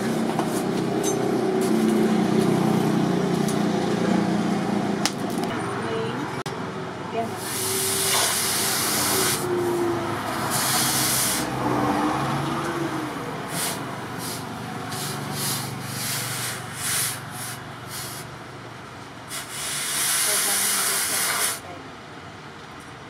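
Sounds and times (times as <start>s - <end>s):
hot blade hissing in water: 7.4s - 9.4s, 10.5s - 11.5s, 19.3s - 21.6s.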